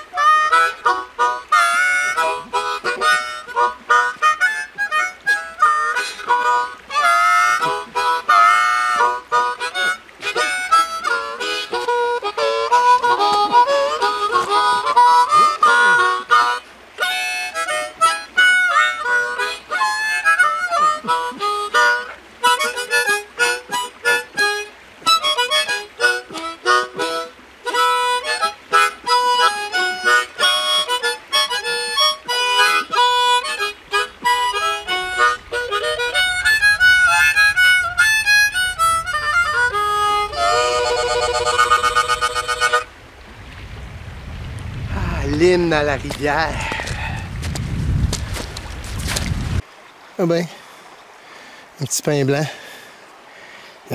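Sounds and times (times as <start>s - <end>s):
harmonica melody: 0.0s - 43.0s
player breathing: 46.5s - 47.4s, 52.5s - 53.8s.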